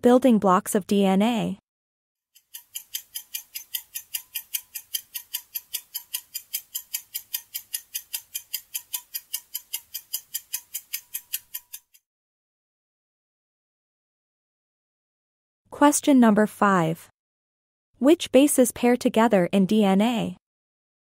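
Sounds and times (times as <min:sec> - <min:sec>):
countdown timer ticking: 0:02.4 - 0:12.0.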